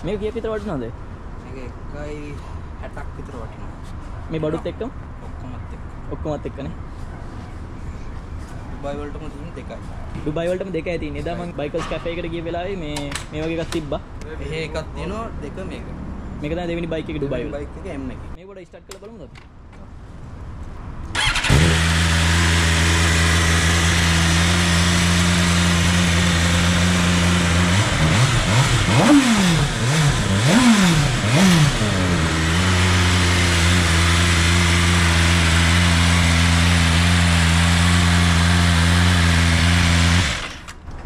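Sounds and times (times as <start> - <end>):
motorcycle engine idling and revving: 21.0 - 40.9.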